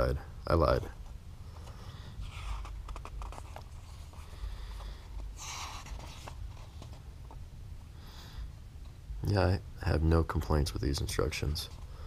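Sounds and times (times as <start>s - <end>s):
paper rustling: 1.6s - 7.0s.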